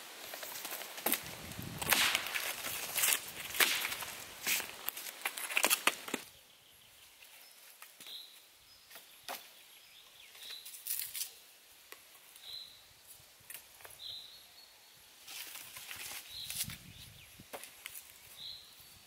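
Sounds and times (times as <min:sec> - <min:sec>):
dry sticks cracking and snapping: 0:00.4 - 0:06.3, 0:10.7 - 0:12.0
bird chirping: 0:06.2 - 0:10.8, 0:12.4 - 0:12.9, 0:13.8 - 0:15.2, 0:16.2 - 0:19.0.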